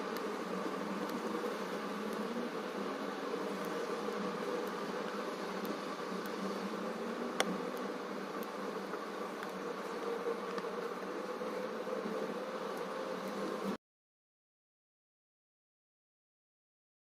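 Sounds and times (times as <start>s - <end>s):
steady buzzing hum: 0.0s - 13.8s
faint clicks: 0.1s - 0.3s, 1.0s - 2.3s, 3.6s - 6.5s, 7.4s - 11.1s.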